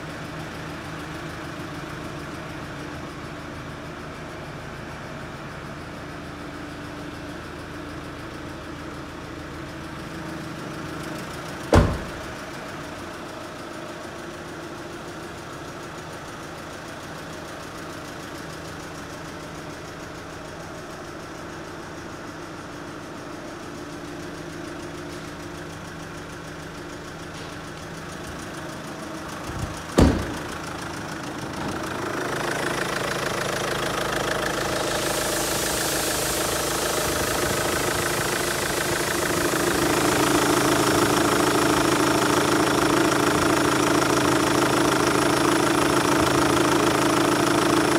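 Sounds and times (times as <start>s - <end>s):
diesel engine idling: 0.0s - 47.9s
car door shutting: 11.7s - 12.4s, 29.5s - 30.6s.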